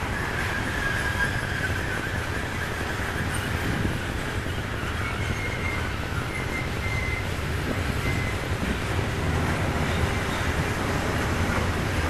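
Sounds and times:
train wheels rumbling on rails: 0.0 - 12.0
thin wheel squeals: 0.1 - 7.3, 8.0 - 8.5.

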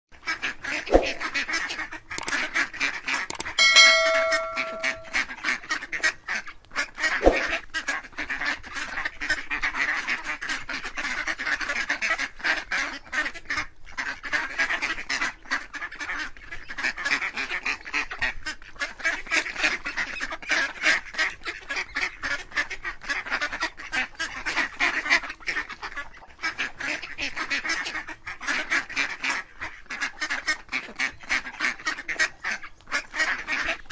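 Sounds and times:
steady held tone: 3.3 - 5.2
ducks quacking and peeping: 8.9 - 33.9.

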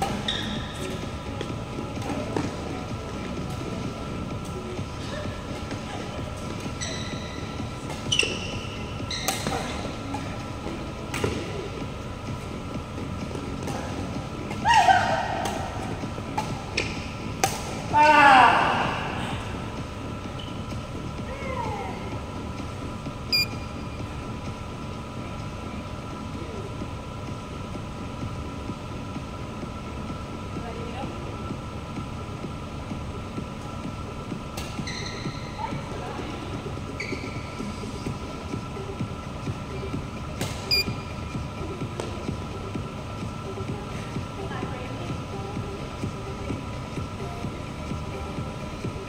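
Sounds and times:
shoes squeaking on court floor: 0.0 - 2.8, 5.6 - 9.9, 20.3 - 20.8, 34.6 - 35.6, 36.9 - 38.1
faint steady hum: 0.0 - 49.0
ventilation rumble: 0.0 - 49.0.

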